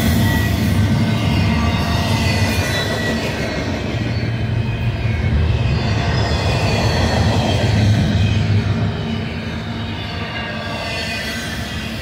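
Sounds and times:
freight train wheels rumbling: 0.0 - 12.0.

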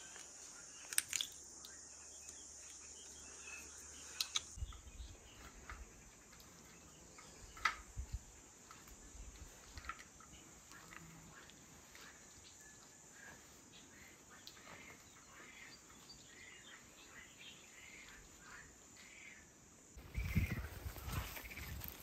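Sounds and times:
high-pitched cricket trill: 0.0 - 6.1
faint chirps: 0.0 - 22.0
rustling of herbs by hand: 20.0 - 22.0.

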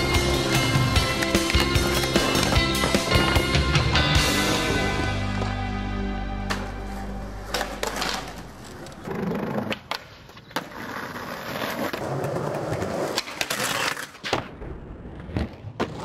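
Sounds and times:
background music: 0.0 - 9.1
skateboard wheels rolling on concrete: 0.0 - 16.0
skateboard clacking on pavement: 7.5 - 14.5.

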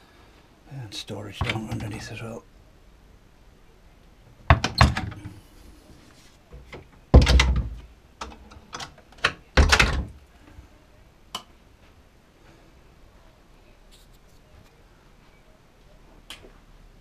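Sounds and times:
cupboard doors knocking and thudding: 4.5 - 5.4, 7.1 - 7.8, 9.6 - 10.2.

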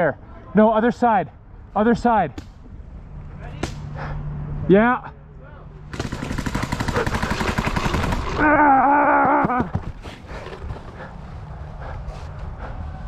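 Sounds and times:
person shouting: 8.4 - 9.7.

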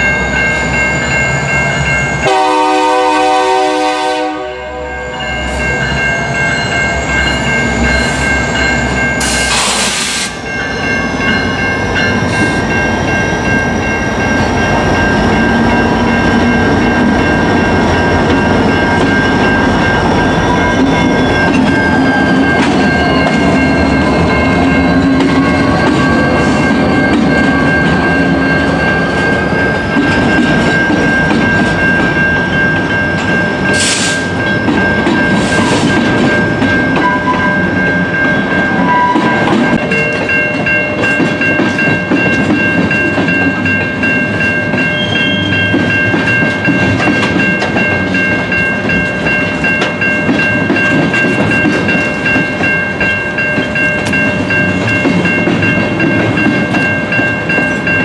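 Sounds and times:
diesel locomotives droning: 0.0 - 58.0
steady high ring: 0.0 - 58.0
locomotive horn: 2.2 - 5.2
train wheels clacking over rails: 6.6 - 58.0.

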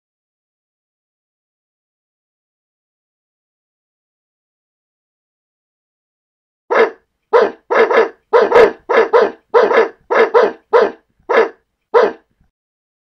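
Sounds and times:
dog barking: 6.7 - 12.3.

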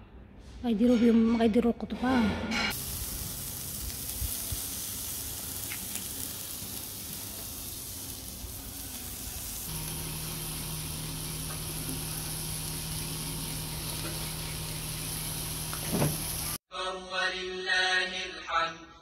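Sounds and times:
kebabs sizzling on charcoal grill: 2.7 - 16.6
steady low hum: 9.7 - 16.6.

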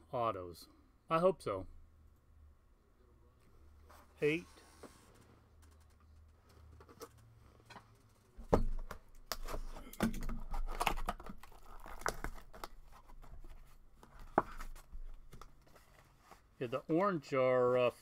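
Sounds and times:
small clicks and rustles: 5.0 - 8.4
wrapper tearing and crinkling: 10.4 - 12.9.

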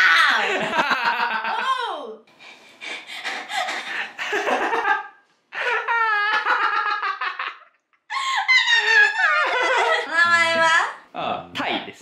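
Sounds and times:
woman laughing: 0.3 - 1.9, 3.2 - 10.6.

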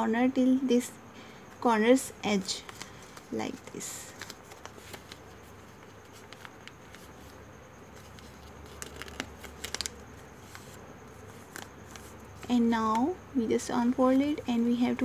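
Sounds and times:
low steady hum: 0.0 - 15.0
paper crackling as it is folded: 2.3 - 13.1.

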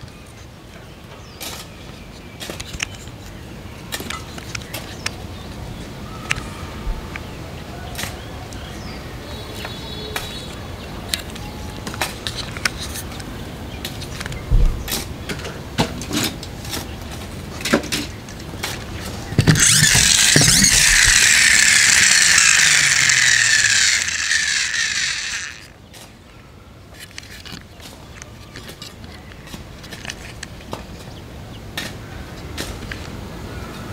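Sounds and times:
plastic toy trucks clicking: 2.4 - 3.3, 3.9 - 5.2, 11.1 - 26.2, 26.9 - 30.8
toy friction motor whirring: 18.7 - 25.8.

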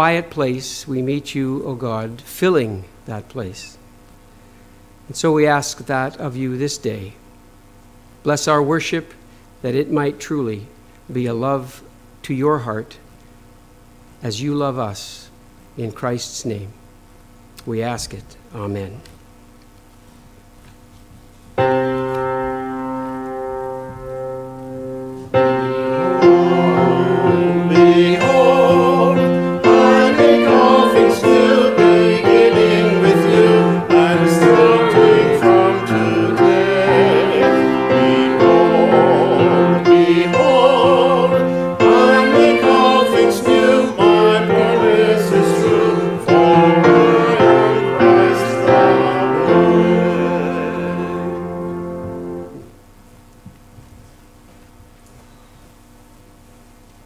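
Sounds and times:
grand piano playing a hymn: 21.6 - 52.7
man singing: 26.2 - 51.5.

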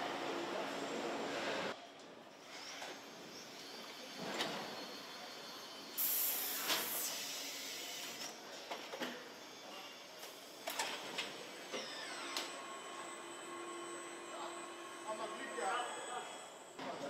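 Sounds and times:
loud air hiss: 5.9 - 8.1.

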